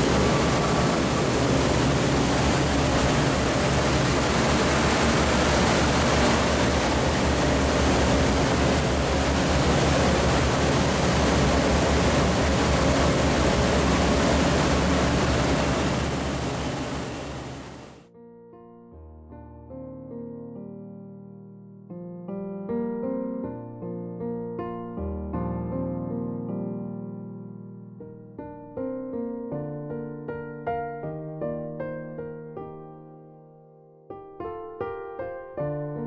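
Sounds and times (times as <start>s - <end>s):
rushing machinery noise: 0.0s - 18.1s
soft piano music: 0.0s - 36.0s.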